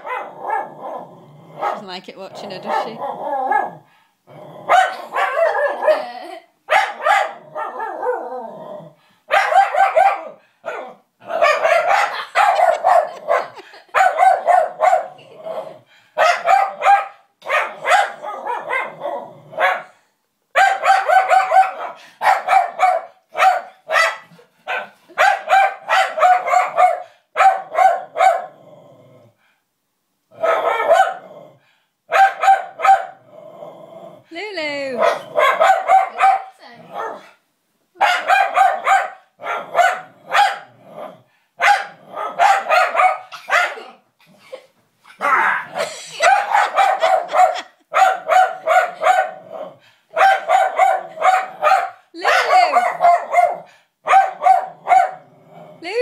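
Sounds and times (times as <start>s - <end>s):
dog barking: 0.0s - 1.0s, 1.6s - 1.9s, 2.6s - 3.8s, 4.7s - 6.1s, 6.7s - 8.3s, 9.3s - 15.2s, 16.2s - 28.6s, 30.4s - 31.2s, 32.1s - 33.2s, 35.0s - 37.4s, 38.0s - 40.7s, 41.6s - 44.0s, 45.2s - 55.3s.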